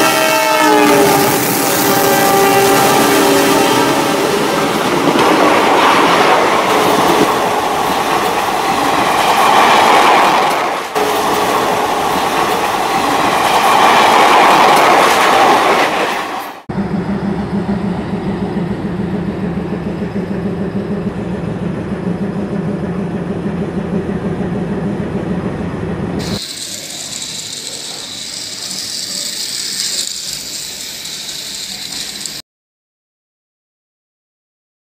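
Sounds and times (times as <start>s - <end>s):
wheels clattering on track: 4.0s - 16.7s
toy train motor whirring: 26.2s - 32.4s.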